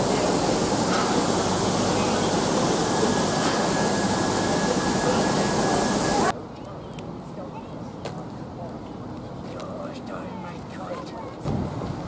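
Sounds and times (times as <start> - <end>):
loud hiss of escaping steam: 0.0 - 6.3.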